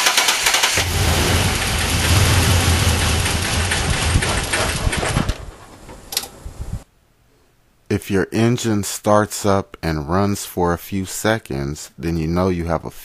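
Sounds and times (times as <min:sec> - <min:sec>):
car engine cranking: 0:00.0 - 0:06.4
engine running with low hum: 0:00.7 - 0:05.3.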